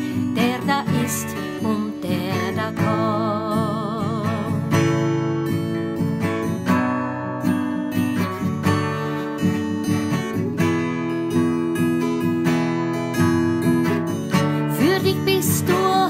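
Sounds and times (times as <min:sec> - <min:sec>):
person singing: 0:00.0 - 0:04.8, 0:14.7 - 0:16.0
acoustic guitar strumming: 0:00.0 - 0:16.0.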